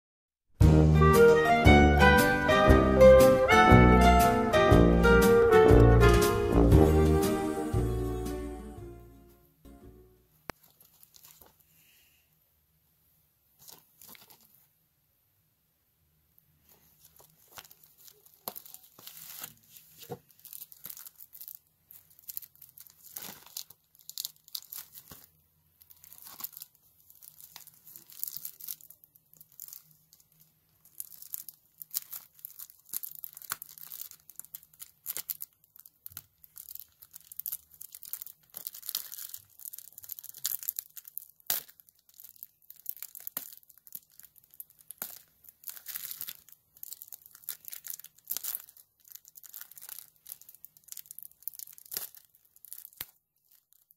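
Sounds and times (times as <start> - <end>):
plastic wrap crinkling: 10.5 - 11.9, 13.6 - 14.7, 16.6 - 53.9.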